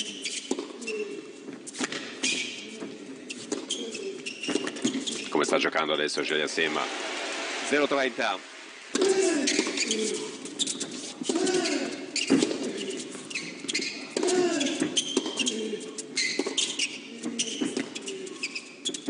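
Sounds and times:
racquets striking tennis ball: 0:00.0 - 0:05.2, 0:09.0 - 0:18.6
sneakers squeaking on court: 0:00.0 - 0:05.4, 0:09.0 - 0:19.0.

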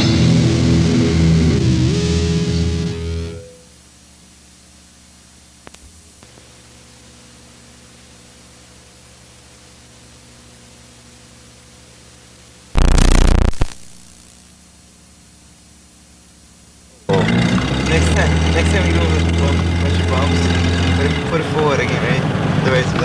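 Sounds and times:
tape hiss: 0:00.4 - 0:17.1
loud burst of noise: 0:12.8 - 0:14.5
low hum: 0:12.8 - 0:14.6.

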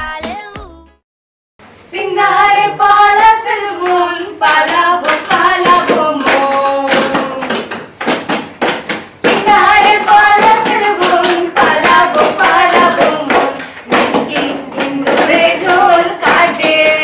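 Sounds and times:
music: 0:00.0 - 0:01.0
two women singing: 0:01.9 - 0:07.7, 0:09.3 - 0:17.0.

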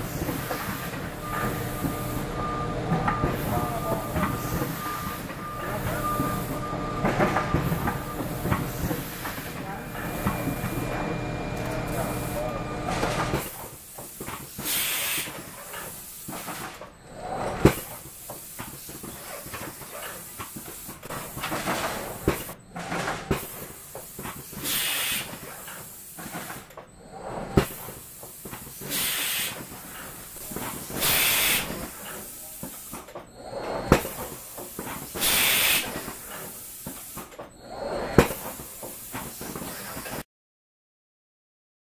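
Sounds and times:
machine hum: 0:00.0 - 0:13.4
compressed air hissing: 0:14.5 - 0:15.4, 0:24.5 - 0:25.9, 0:28.8 - 0:29.7, 0:30.9 - 0:31.8, 0:34.9 - 0:36.0.

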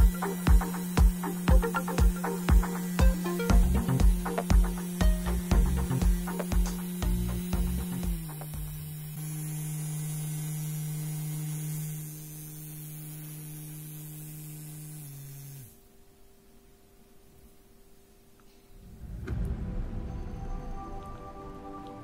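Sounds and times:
small electric motor humming: 0:00.0 - 0:15.9.

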